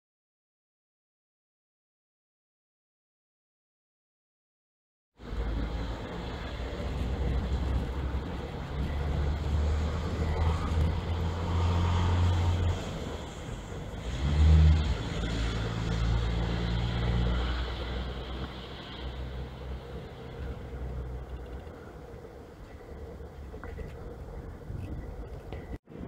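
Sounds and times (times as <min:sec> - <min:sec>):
low-pitched vehicle passing: 0:05.2 - 0:26.0
vehicles passing on road: 0:05.2 - 0:26.0.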